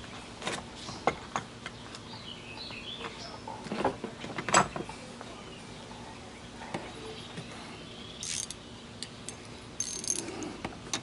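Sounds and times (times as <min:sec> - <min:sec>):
birds chirping: 0:00.0 - 0:03.7, 0:04.3 - 0:10.6
hand tools clicking on metal: 0:08.2 - 0:11.0.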